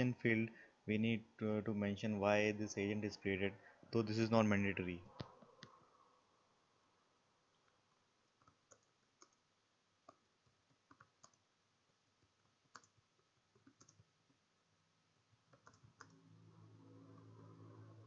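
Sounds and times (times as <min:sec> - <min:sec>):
computer keyboard typing: 0:08.4 - 0:09.4, 0:10.8 - 0:11.4, 0:12.7 - 0:14.1, 0:15.5 - 0:16.2.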